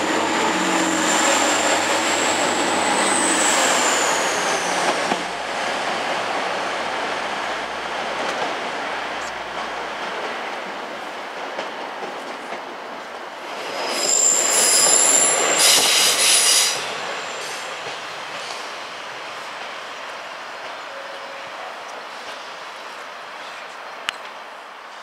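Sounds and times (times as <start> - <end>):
train wheels squealing: 0.0 - 5.3, 13.5 - 18.6
train running rumble: 0.0 - 10.8.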